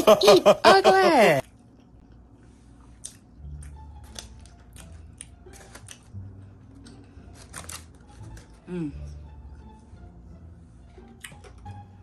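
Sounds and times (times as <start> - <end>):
aluminium foil crackling: 7.3 - 8.6.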